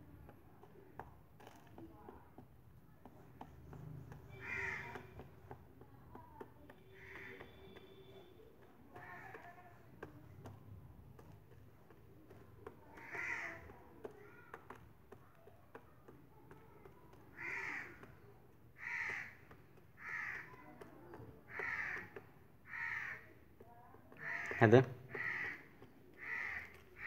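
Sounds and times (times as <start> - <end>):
crow cawing: 4.3 - 5.2, 6.9 - 7.6, 13.0 - 13.7, 17.4 - 18.1, 18.8 - 19.4, 20.0 - 20.6, 21.5 - 23.4, 24.2 - 27.0.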